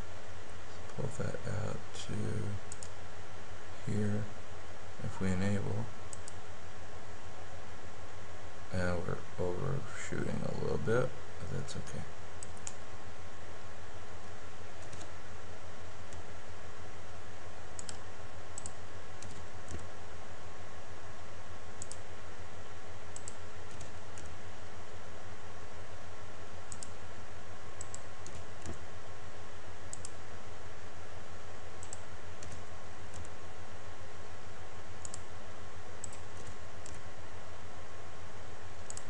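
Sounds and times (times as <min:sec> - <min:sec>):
low electrical hum: 0:00.0 - 0:39.0
mouse and keyboard clicks: 0:14.8 - 0:15.1, 0:36.0 - 0:37.0.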